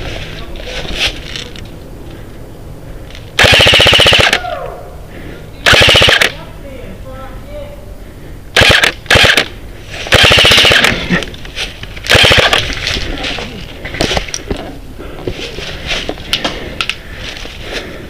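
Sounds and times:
airsoft gun firing bursts: 0:03.4 - 0:04.4, 0:05.6 - 0:06.4, 0:08.6 - 0:09.5, 0:10.1 - 0:11.0, 0:12.1 - 0:12.7
scattered clicks: 0:05.7 - 0:06.4, 0:08.6 - 0:09.5, 0:10.1 - 0:13.0.

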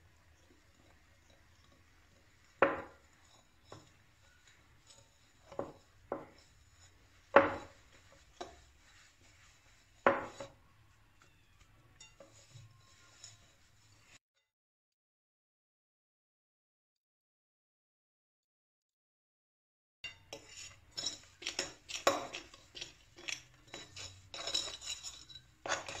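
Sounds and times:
fork clinking on glass bowl: 0:11.9 - 0:13.5, 0:20.0 - 0:26.0.

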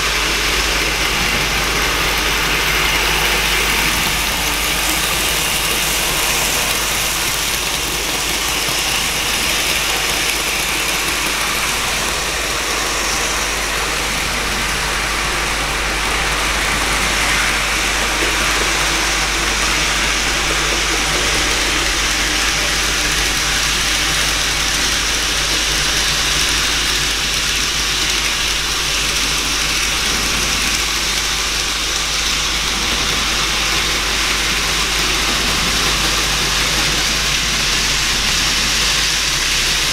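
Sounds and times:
model train motor whirring: 0:00.0 - 0:39.9.

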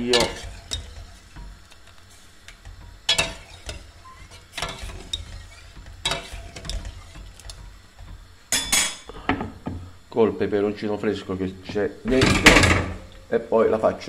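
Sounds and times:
spoon scraping in metal pot: 0:00.0 - 0:09.0.

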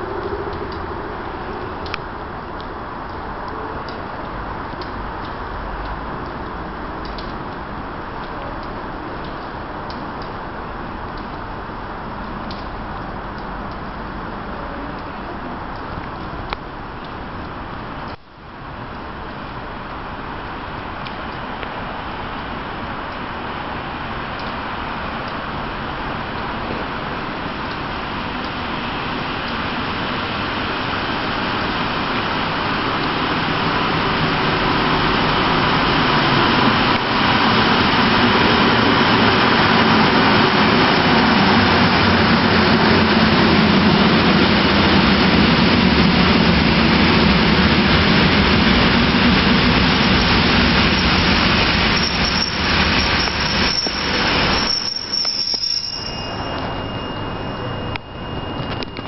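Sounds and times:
train wheels rumbling on rails: 0:20.8 - 0:59.0
high brake squeals: 0:51.8 - 0:59.0.

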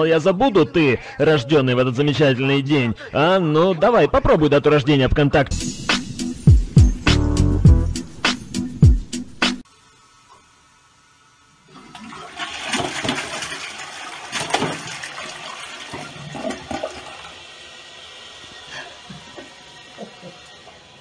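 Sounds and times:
toilet flushing: 0:11.6 - 0:21.0.

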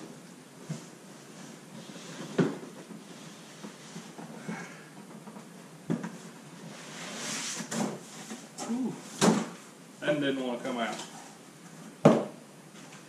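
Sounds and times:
cardboard rustling and scraping: 0:06.0 - 0:09.2.

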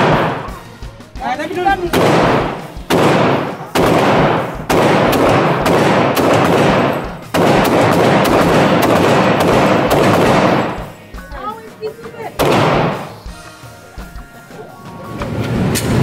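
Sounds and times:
pistol shots echoing indoors: 0:01.9 - 0:10.9, 0:12.4 - 0:13.2.

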